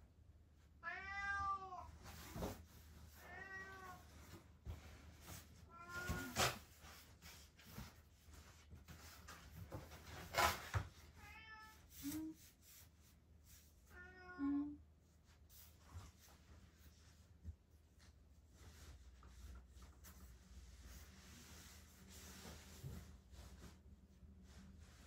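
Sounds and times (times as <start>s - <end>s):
cat meowing: 0.8s - 1.9s, 3.2s - 4.1s.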